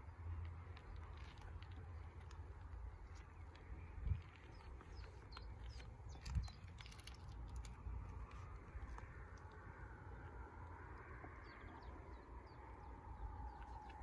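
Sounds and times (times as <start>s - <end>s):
birds chirping: 0.0s - 14.0s
low steady rumble: 0.0s - 14.0s.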